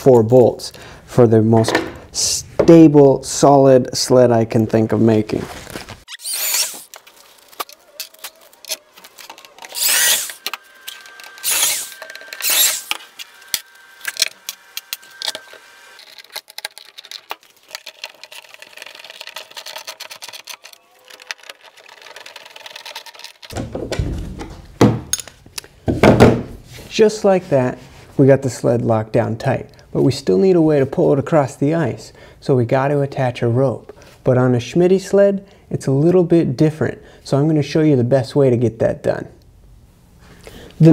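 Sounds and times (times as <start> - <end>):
drill boring through plastic: 6.1 - 6.9, 7.6 - 23.6
bolts clicking and rattling: 6.9 - 18.7, 19.6 - 26.3.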